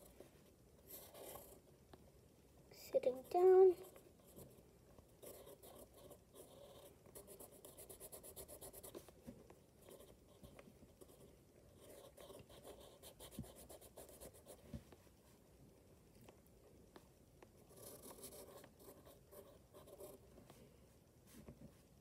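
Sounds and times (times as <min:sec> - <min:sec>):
pencil scratching on paper: 0:00.9 - 0:01.6, 0:05.2 - 0:09.2, 0:09.8 - 0:14.9, 0:17.7 - 0:20.6.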